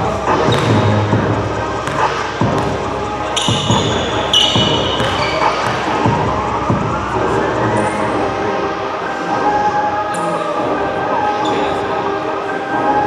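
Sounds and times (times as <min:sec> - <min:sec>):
murmur of voices: 0:00.0 - 0:13.0
shoe squeaks: 0:00.4 - 0:00.9, 0:03.3 - 0:06.0
basketball bouncing on hardwood: 0:03.4 - 0:06.1.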